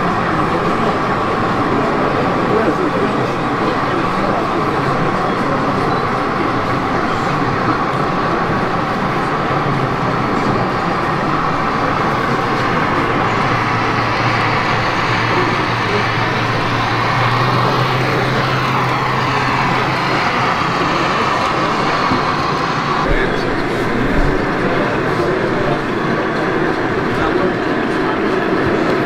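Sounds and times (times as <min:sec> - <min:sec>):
model trains rumbling: 0:00.0 - 0:29.0
low hum: 0:08.8 - 0:26.2.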